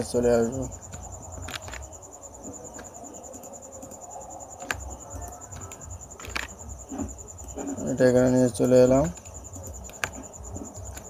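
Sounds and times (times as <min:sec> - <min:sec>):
computer mouse clicks: 0:04.6 - 0:06.6.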